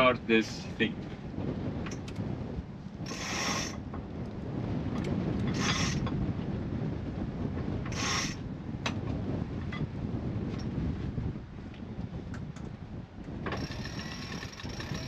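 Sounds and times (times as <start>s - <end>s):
wind on microphone: 0.0s - 15.0s
winch grinding: 3.0s - 3.8s, 5.0s - 6.1s, 7.9s - 8.4s, 13.4s - 15.0s
rasping rushes of line: 3.1s - 3.8s, 5.4s - 6.1s.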